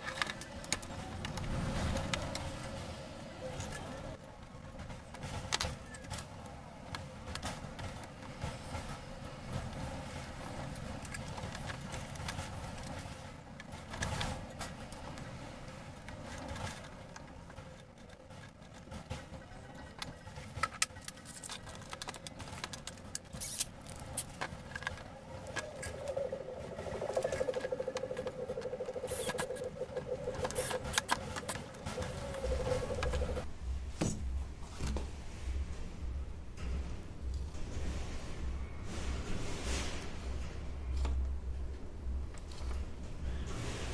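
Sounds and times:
pulsing buzzing tone: 0:25.5 - 0:33.4.

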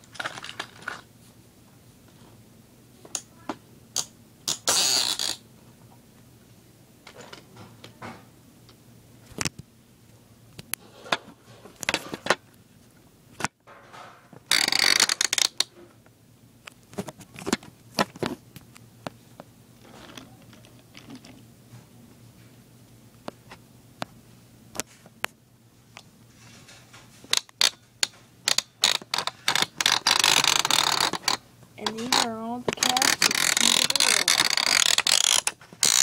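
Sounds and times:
small hard objects clicking: 0:27.3 - 0:36.0.

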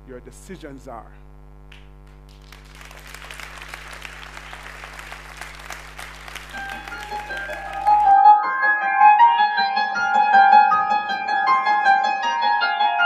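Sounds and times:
electrical mains hum: 0:00.0 - 0:08.1
audience applauding: 0:02.2 - 0:08.2
piano music: 0:06.5 - 0:13.0.

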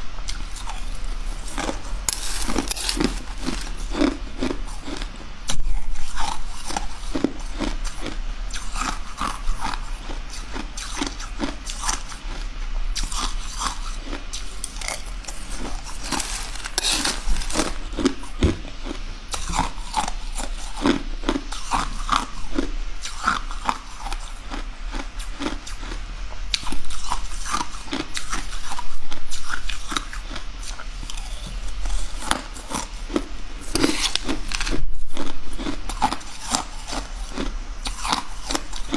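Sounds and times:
person crunching ice: 0:00.6 - 0:05.0, 0:13.0 - 0:21.0, 0:33.7 - 0:38.9.

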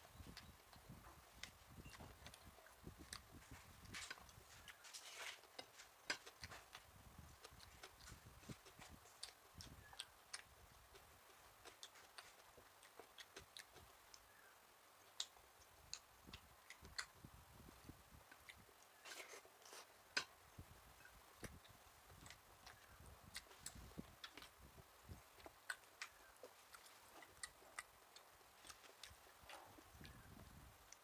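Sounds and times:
person chewing: 0:00.2 - 0:30.2
mouth clicks and smacks: 0:05.5 - 0:31.0.

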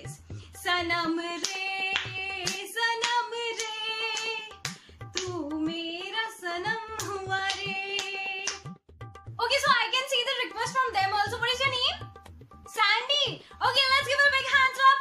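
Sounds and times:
woman singing wordless notes: 0:05.2 - 0:08.5.

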